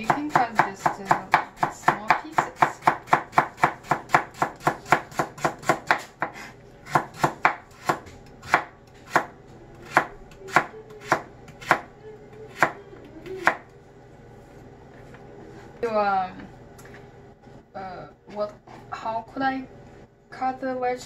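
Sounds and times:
knife chopping on cutting board: 0:00.0 - 0:11.9, 0:12.5 - 0:12.8.

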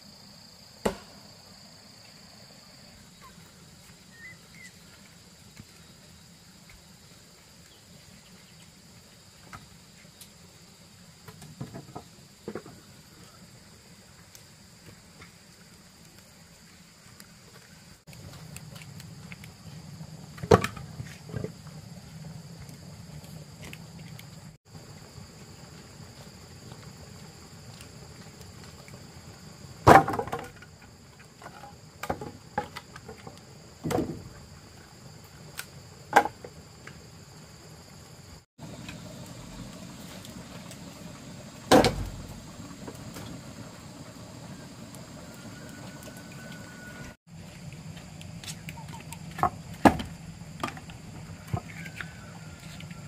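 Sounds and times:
insect drone: 0:00.0 - 0:53.0
wooden logs knocking: 0:29.9 - 0:30.6.

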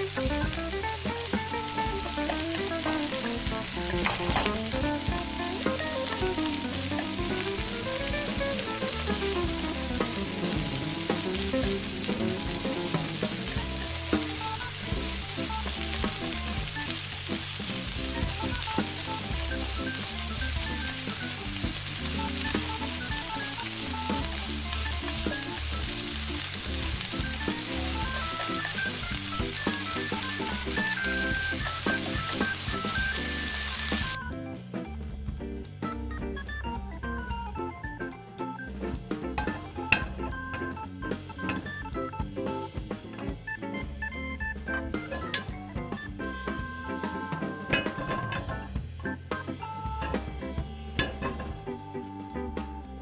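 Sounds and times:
vegetables sizzling in oil: 0:00.0 - 0:34.2, 0:45.0 - 0:45.5
faint gentle melody: 0:00.0 - 0:53.0
spoon scraping saucepan: 0:45.0 - 0:45.5.

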